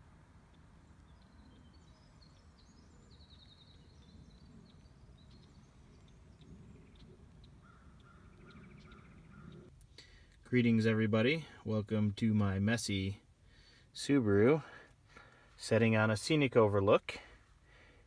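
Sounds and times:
bird trill: 0.0s - 9.7s
faint bird chirps: 0.0s - 10.2s.

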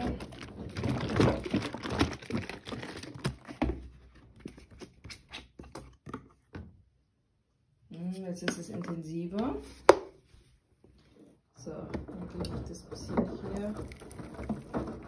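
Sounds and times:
plastic bottles clicking and crinkling: 0.0s - 5.0s, 11.8s - 15.0s.

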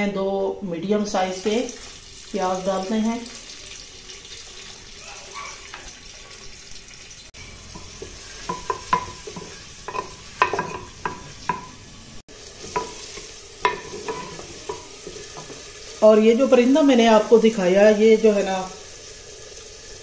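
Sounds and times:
onions sizzling in fat: 1.0s - 20.0s
wooden spoon scraping clay pot: 7.4s - 11.8s, 12.6s - 15.8s.

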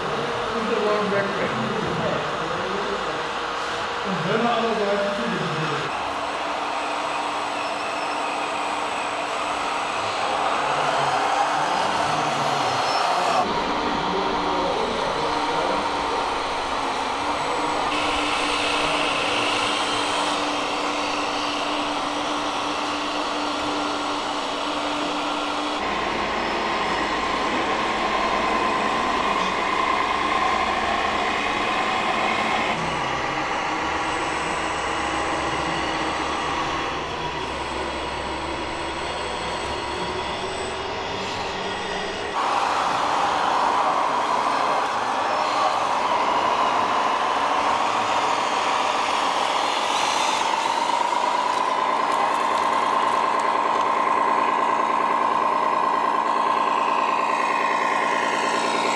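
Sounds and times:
model vehicle motor whine: 3.6s - 58.9s.

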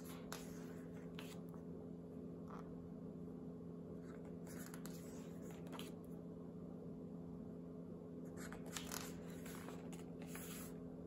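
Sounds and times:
book pages turning: 0.0s - 1.5s, 4.1s - 6.0s, 8.4s - 10.8s
faint low hum: 0.0s - 11.0s.

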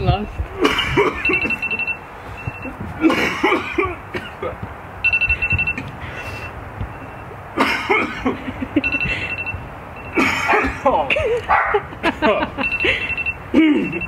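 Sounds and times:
man coughing hard: 0.6s - 1.6s, 3.0s - 4.6s, 7.6s - 8.5s, 10.1s - 11.6s, 13.5s - 14.0s
timer alarm beeping: 1.1s - 2.8s, 5.0s - 7.4s, 8.8s - 10.2s, 12.6s - 14.0s.

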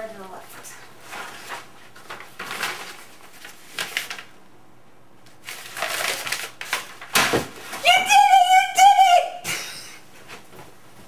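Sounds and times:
paper rustling and crinkling: 0.8s - 4.4s, 5.3s - 7.8s.

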